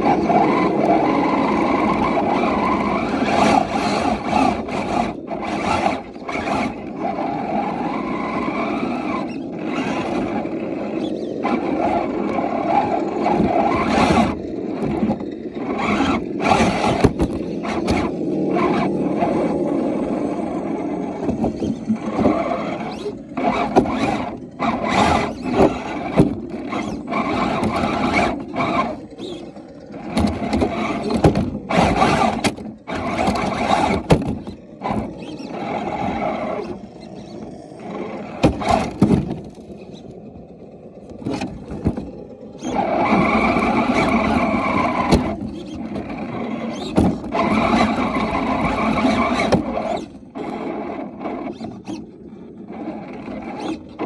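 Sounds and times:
rc car motor whining: 0.0s - 54.0s.

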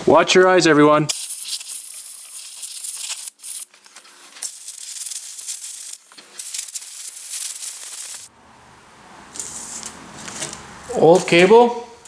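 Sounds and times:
compressed air blow gun hissing: 1.1s - 3.7s, 4.4s - 8.3s.

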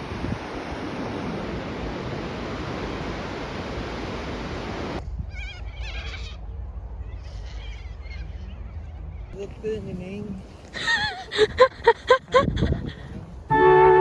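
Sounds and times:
surf on the beach: 0.0s - 5.0s
wind: 0.0s - 14.0s
birds warbling cries: 5.3s - 9.4s.

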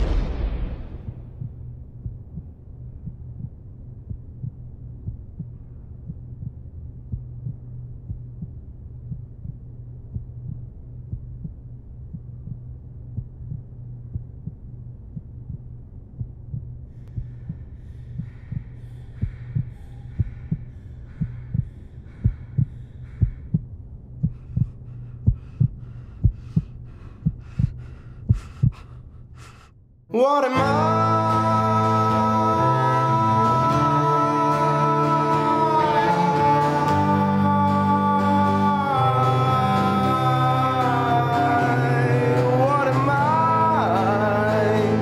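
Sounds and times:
low droning hum: 0.0s - 30.1s.

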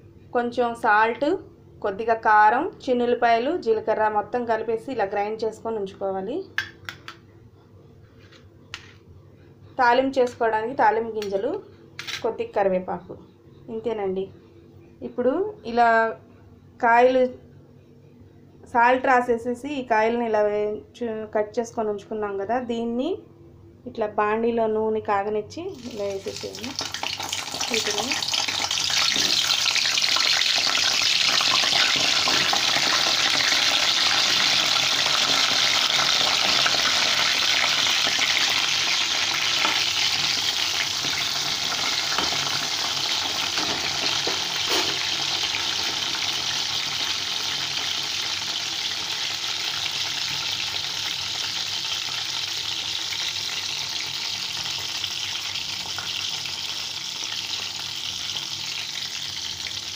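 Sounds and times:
vegetables sizzling in hot oil: 25.7s - 59.9s.

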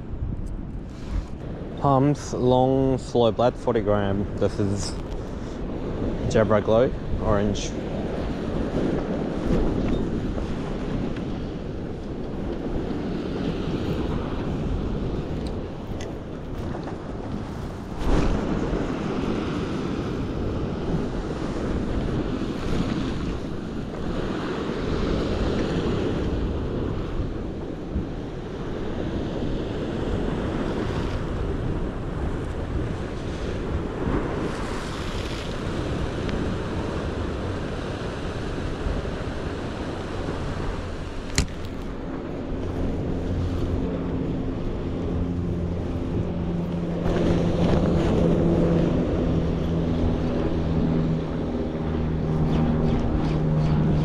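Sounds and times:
wind buffeting microphone: 0.0s - 54.0s
surf washing against rocks: 0.9s - 52.2s
sharp click: 41.3s - 41.8s.

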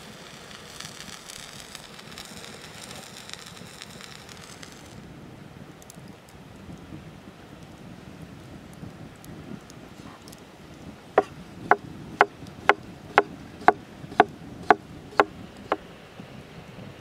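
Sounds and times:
knife chopping on wooden board: 11.2s - 15.8s.

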